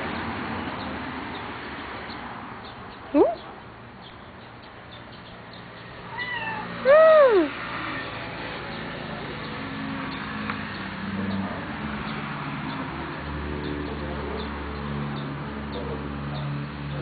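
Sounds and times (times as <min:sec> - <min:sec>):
cat meowing: 0:06.1 - 0:07.5.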